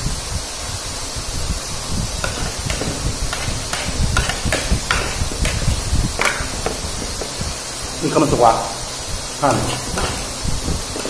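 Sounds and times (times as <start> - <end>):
low rumble: 1.5 - 8.0.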